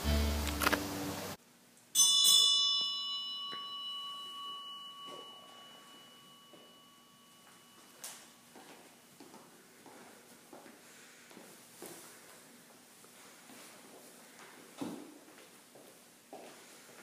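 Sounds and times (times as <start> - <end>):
bell ringing: 2.0 - 9.1.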